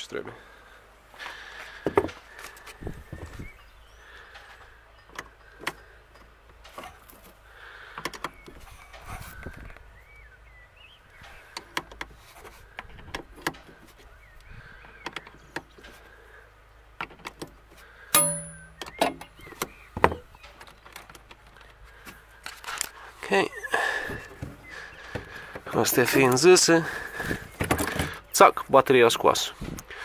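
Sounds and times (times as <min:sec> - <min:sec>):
ringing metal clank: 0:18.1 - 0:19.2.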